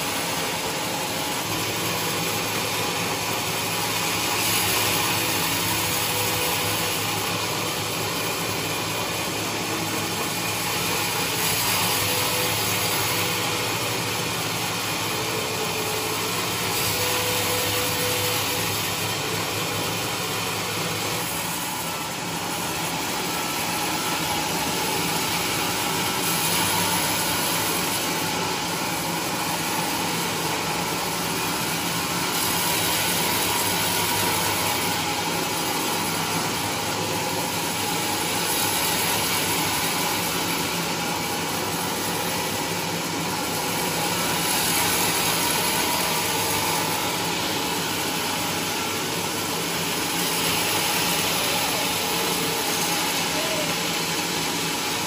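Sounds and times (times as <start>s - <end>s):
band saw cutting log: 0.0s - 55.0s.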